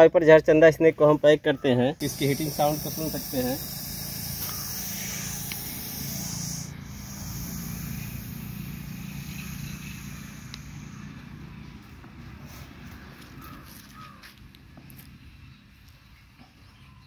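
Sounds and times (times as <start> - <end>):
snake hissing: 2.0 - 11.9.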